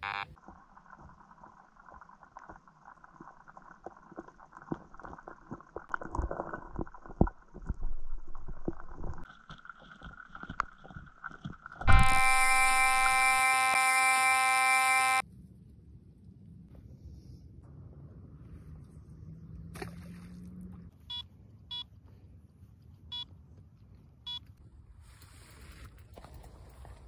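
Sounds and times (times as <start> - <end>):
electronic buzzing tone: 0.0 - 0.4, 11.8 - 15.2
underwater clicks and thumps: 0.4 - 13.2.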